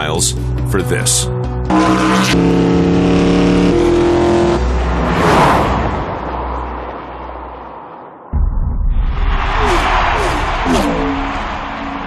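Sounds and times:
truck engine revving hard: 1.7s - 6.4s
truck rushing past: 1.7s - 8.1s.

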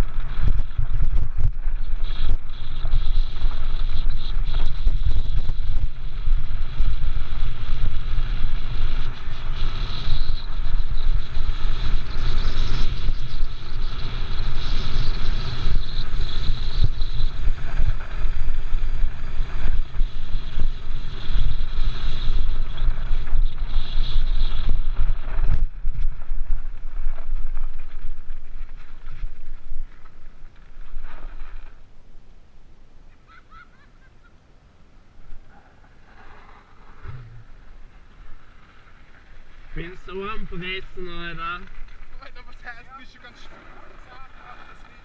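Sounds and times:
wind: 0.0s - 45.0s
tyres rattling on loose gravel: 38.0s - 45.0s.

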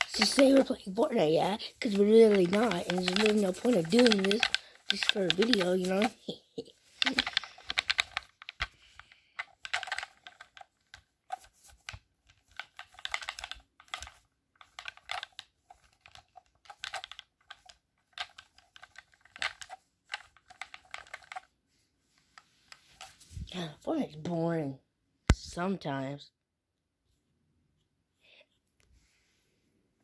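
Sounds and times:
game controller buttons clicking: 2.4s - 6.2s, 7.0s - 8.8s, 9.4s - 10.6s.

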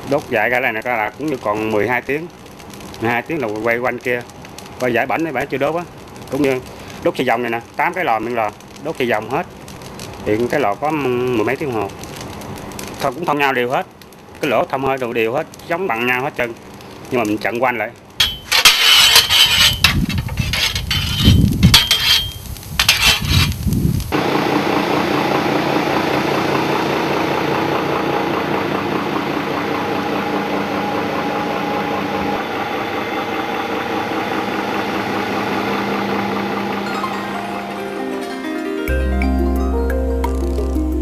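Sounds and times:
loud uneven rumbling with knocks: 18.2s - 24.2s
belt-driven machine droning: 24.1s - 38.2s.

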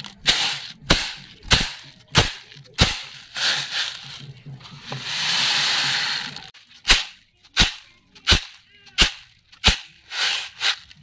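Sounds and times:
beans sliding with rushing hiss: 2.8s - 7.0s, 9.6s - 11.0s.

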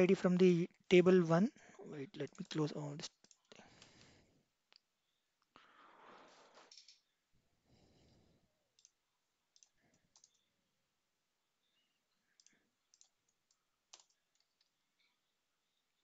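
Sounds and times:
faint computer mouse clicks: 8.8s - 9.0s, 9.6s - 10.5s, 12.4s - 15.1s.

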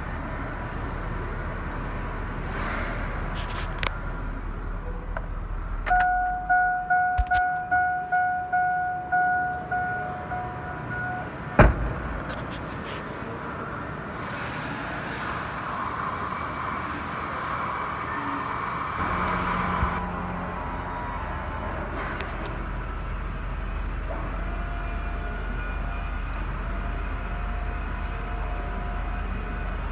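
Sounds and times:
dashboard warning chime: 5.9s - 11.4s
loud thunk: 11.6s - 12.2s.

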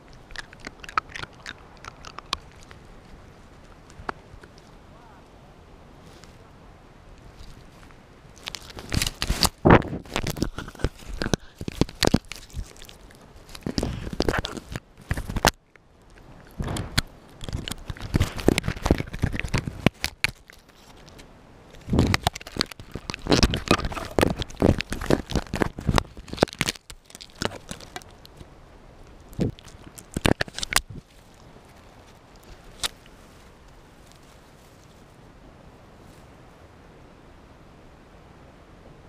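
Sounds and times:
teeth crunching on plastic: 0.0s - 4.7s, 8.3s - 34.2s.

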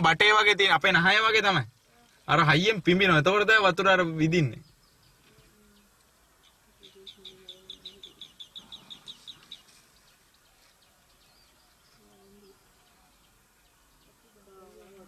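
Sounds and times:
bird calling with sharp notes: 4.4s - 14.1s.

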